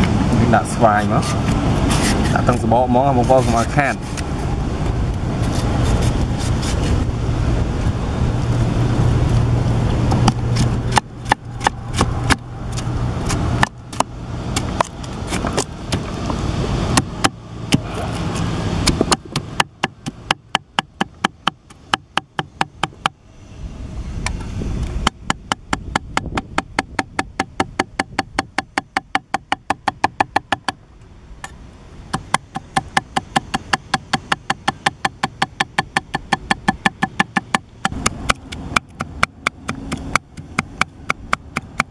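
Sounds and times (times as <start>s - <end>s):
low rumble: 0.0s - 19.0s, 23.0s - 26.7s
cleaver chopping on wooden board: 10.1s - 16.2s, 25.0s - 30.8s, 32.1s - 41.9s.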